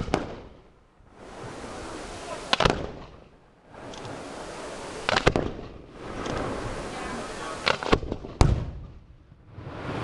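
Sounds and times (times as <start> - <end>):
firework bangs: 0.0 - 3.9, 4.8 - 10.0
steady hiss: 1.0 - 8.0.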